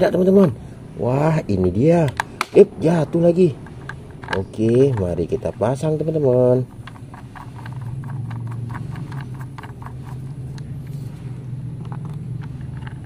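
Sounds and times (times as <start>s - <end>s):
steady low hum: 0.0s - 13.0s
toy screwdriver clicking: 3.6s - 10.7s.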